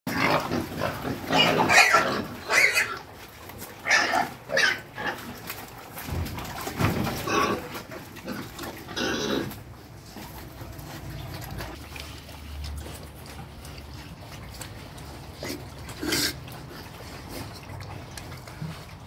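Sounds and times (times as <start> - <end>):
young pigs squealing: 0.1 - 5.6, 7.2 - 9.6, 15.1 - 17.9.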